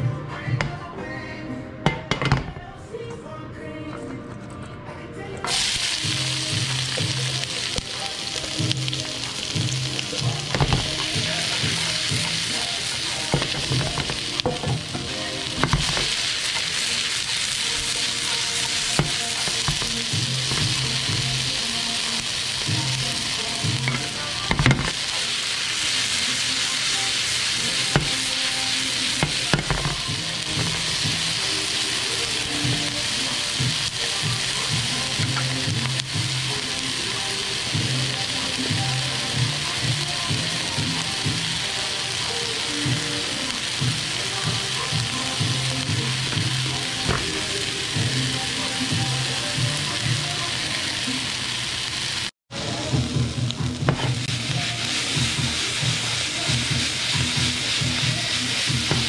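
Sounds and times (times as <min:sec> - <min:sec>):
vegetables sizzling in a frying pan: 0:05.5 - 0:59.0.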